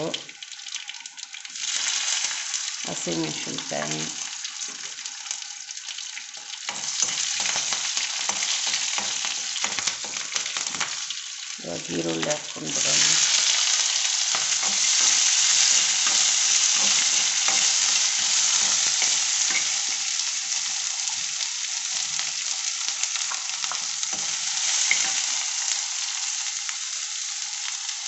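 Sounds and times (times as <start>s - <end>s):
onions sizzling in hot oil: 0.0s - 28.0s
steel spoon scraping a pan: 12.7s - 20.2s, 24.1s - 25.4s.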